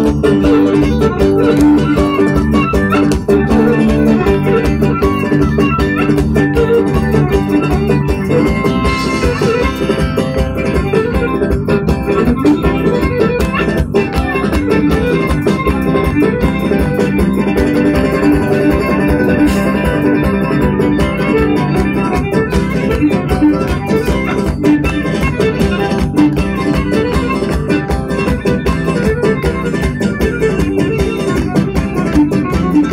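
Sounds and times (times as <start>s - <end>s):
lively dance music: 0.0s - 32.9s.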